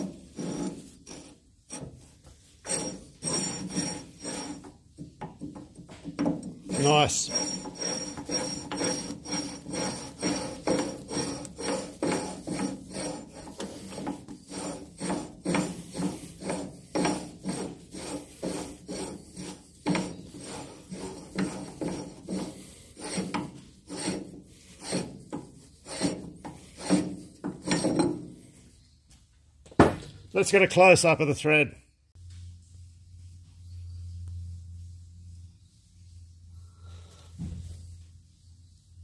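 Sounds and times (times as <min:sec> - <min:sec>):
file rasping on steel: 0:00.0 - 0:06.0, 0:06.6 - 0:28.2.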